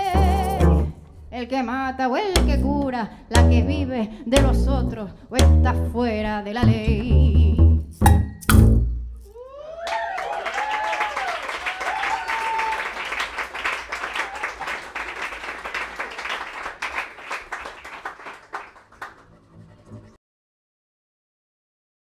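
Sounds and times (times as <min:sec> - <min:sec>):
audience applauding and cheering: 0:09.4 - 0:19.3.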